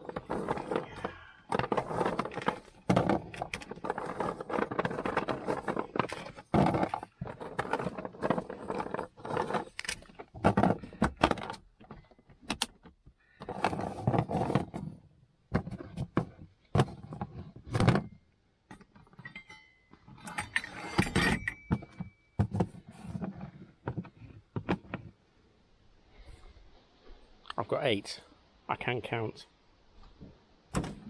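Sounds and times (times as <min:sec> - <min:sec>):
dog biscuits clattering in plastic box: 0:00.0 - 0:09.8.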